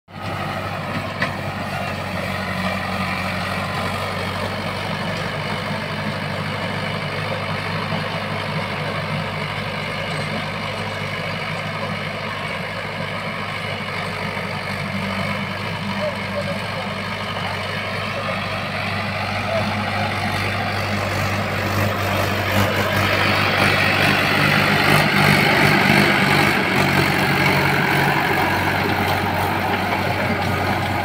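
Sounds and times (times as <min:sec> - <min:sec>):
tractor diesel engine running: 0:00.1 - 0:31.0
rotavator blades churning soil: 0:16.9 - 0:31.0.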